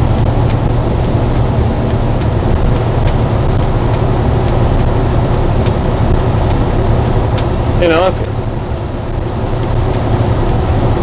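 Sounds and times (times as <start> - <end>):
road noise: 0.0 - 11.0
truck engine drone: 0.0 - 11.0.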